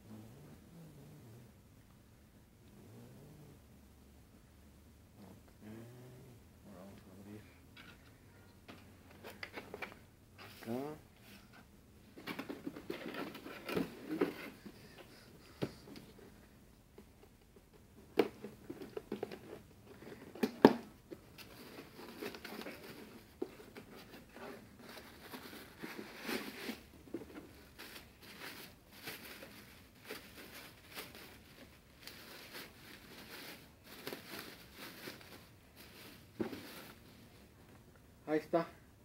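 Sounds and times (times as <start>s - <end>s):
bubble wrap crinkling: 21.3s - 37.2s.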